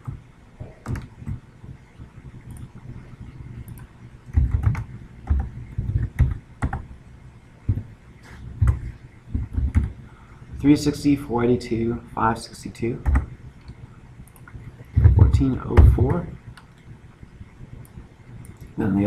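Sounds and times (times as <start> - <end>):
keyboard keystrokes: 0.0 - 1.4, 3.7 - 6.8.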